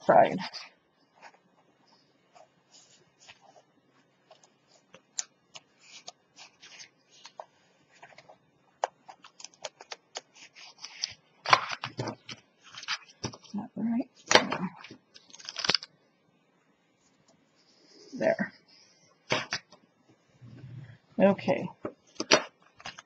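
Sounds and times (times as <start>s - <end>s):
paper rustling: 2.3s - 13.5s, 14.7s - 15.9s, 22.1s - 23.0s.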